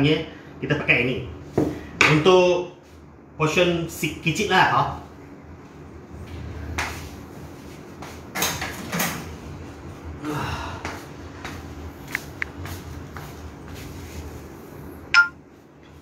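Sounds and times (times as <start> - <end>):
short metallic pings: 15.1 - 15.4.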